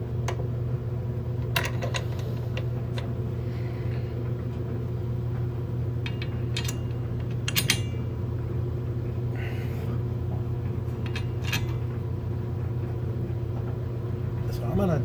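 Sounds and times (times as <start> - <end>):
mechanical hum of equipment: 0.0 - 15.0.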